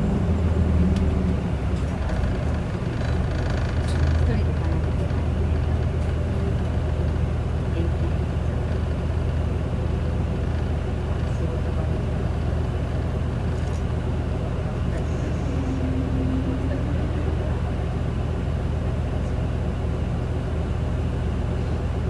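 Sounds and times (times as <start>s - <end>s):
bus diesel engine humming: 0.0s - 22.0s.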